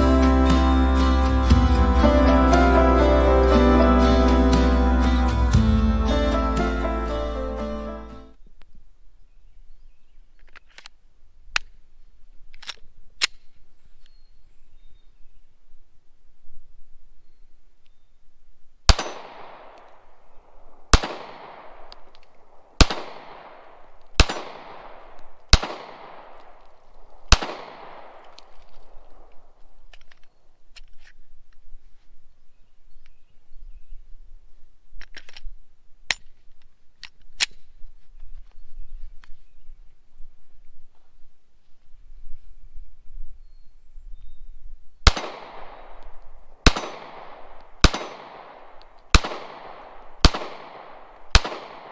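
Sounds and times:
pistol handling clicks: 10.4 - 11.8, 12.5 - 14.2, 20.9 - 31.2, 35.0 - 37.7, 45.1 - 51.9
pistol slide locking back: 12.5 - 13.5
pistol shots echoing: 18.9 - 29.6, 45.0 - 51.9.

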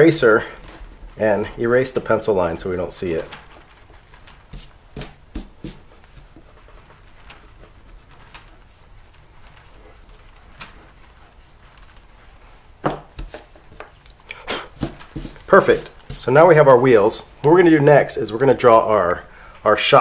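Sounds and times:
eraser rubbing over paper: 0.2 - 16.8
paper rustle: 0.6 - 14.0, 14.6 - 16.7.

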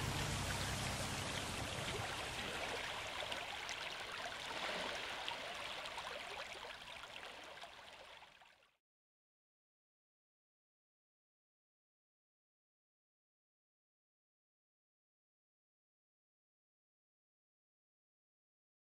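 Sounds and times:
stream rippling over pebbles: 0.0 - 8.8.

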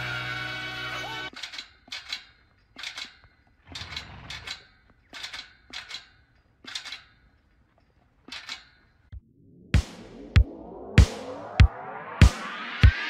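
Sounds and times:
chain rattling on metal gate: 1.3 - 9.1.

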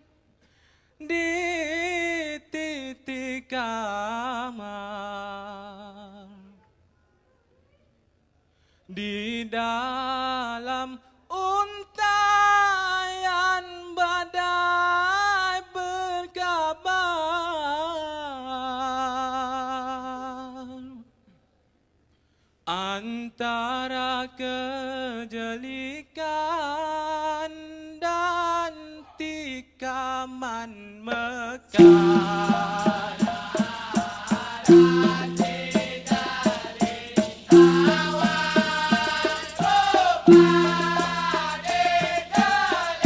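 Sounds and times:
man singing unaccompanied: 29.2 - 43.0.

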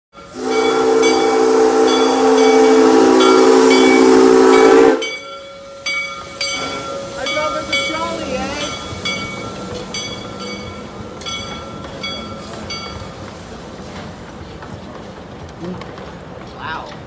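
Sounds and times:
locomotive whistle blowing: 0.2 - 10.7
locomotive bell ringing: 0.2 - 13.3.

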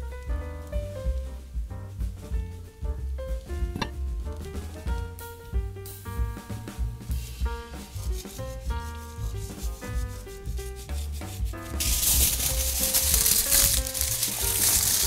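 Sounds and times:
background music with steady beat: 0.0 - 15.0
aluminium foil crinkling: 11.8 - 15.0.

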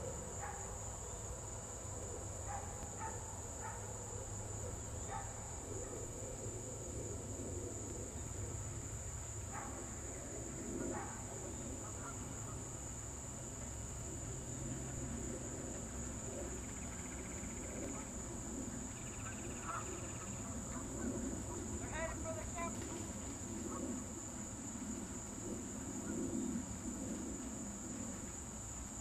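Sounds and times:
insects droning: 0.0 - 29.0
short faint calls: 16.5 - 24.4.

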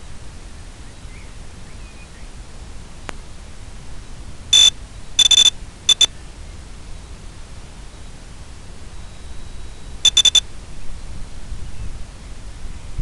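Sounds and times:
steady hiss: 0.0 - 13.0
high-pitched electronic beeps: 4.6 - 6.1, 10.0 - 10.4.

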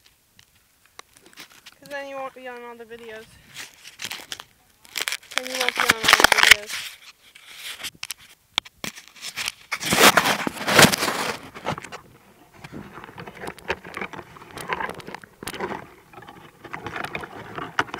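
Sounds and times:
device handling clicks and scrapes: 3.1 - 12.0
rubbing on microphone: 5.4 - 17.9.

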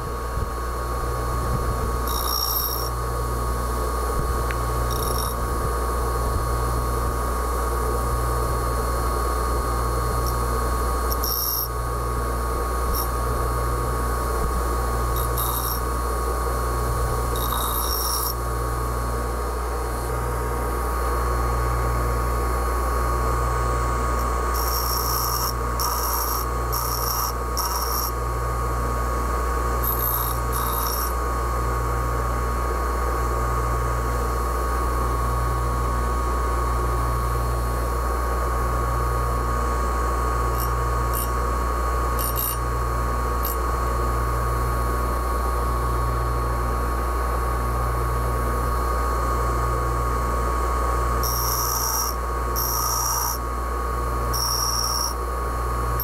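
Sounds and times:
bench grinder motor humming: 1.1 - 7.3, 8.1 - 20.9, 23.5 - 31.3, 40.4 - 44.8, 51.1 - 56.0
steel grinding on wheel: 2.1 - 2.9, 11.1 - 11.7, 15.2 - 15.8, 17.4 - 18.4, 24.2 - 28.1, 29.9 - 31.1, 51.2 - 53.4, 54.4 - 55.2.

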